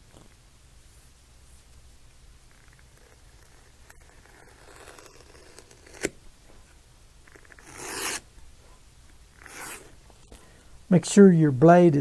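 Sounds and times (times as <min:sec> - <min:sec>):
knife cutting leather: 0:02.5 - 0:06.2, 0:07.3 - 0:08.3, 0:09.4 - 0:09.9.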